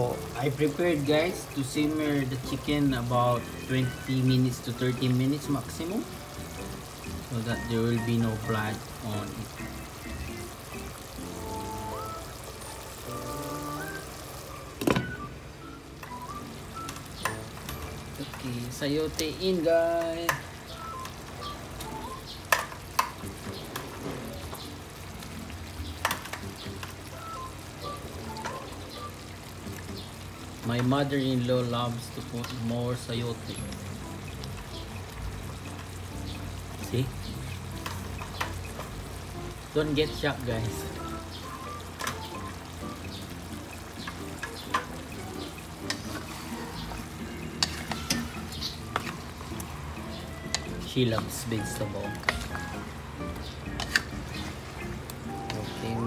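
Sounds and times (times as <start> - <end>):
pot sizzling: 0.0 - 56.0
wooden spatula scraping a pot: 45.9 - 46.8, 47.6 - 48.3.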